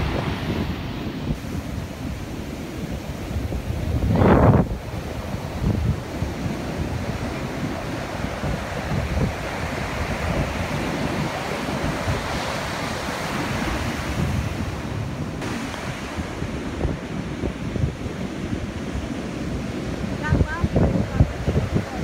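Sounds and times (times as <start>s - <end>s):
storm surf breaking: 0.0s - 22.0s
wind buffeting microphone: 0.0s - 22.0s.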